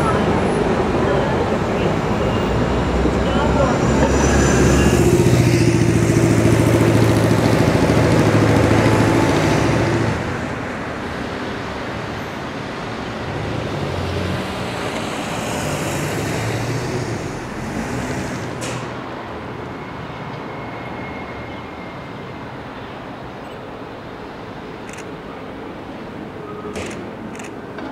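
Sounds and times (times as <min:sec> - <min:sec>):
vehicle engine humming: 0:00.0 - 0:10.6
passing cars: 0:00.0 - 0:27.9
sharp click: 0:26.7 - 0:27.9.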